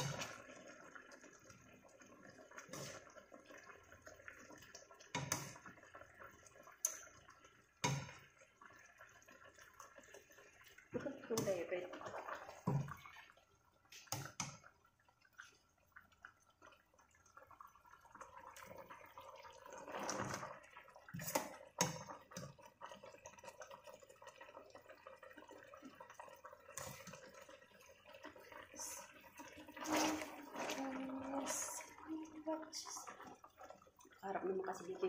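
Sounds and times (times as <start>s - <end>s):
sauce simmering and bubbling: 0.0s - 35.0s.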